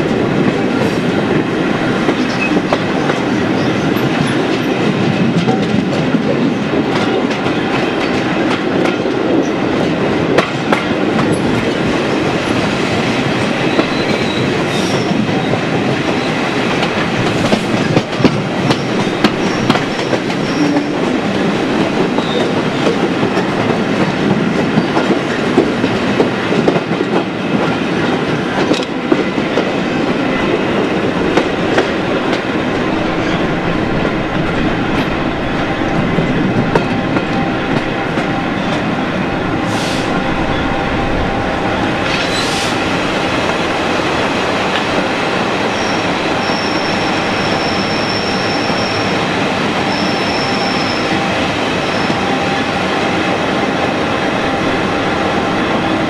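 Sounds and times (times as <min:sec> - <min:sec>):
train wheels clattering and clicking: 0:00.0 - 0:41.2
train rumble: 0:00.0 - 0:56.0.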